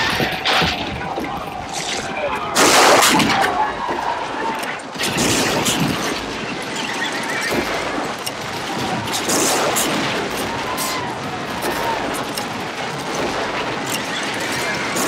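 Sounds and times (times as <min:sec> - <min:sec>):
battle din: 0:00.0 - 0:15.0
gunfire cracks: 0:00.0 - 0:15.0
high squealing cries: 0:06.4 - 0:08.0.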